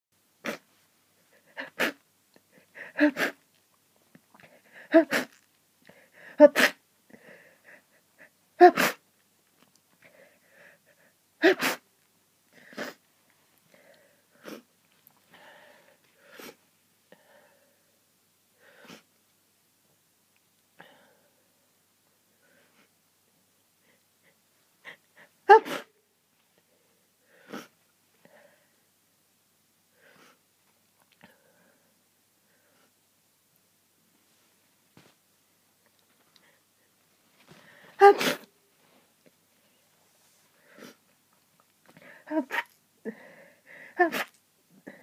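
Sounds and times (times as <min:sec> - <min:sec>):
person sneezing: 0:00.4 - 0:00.7, 0:01.5 - 0:02.0, 0:02.8 - 0:03.4, 0:04.8 - 0:05.4, 0:06.3 - 0:06.8, 0:08.6 - 0:09.0, 0:11.4 - 0:11.8, 0:12.6 - 0:13.0, 0:25.4 - 0:26.0, 0:38.0 - 0:38.5, 0:42.0 - 0:42.8, 0:43.9 - 0:45.0.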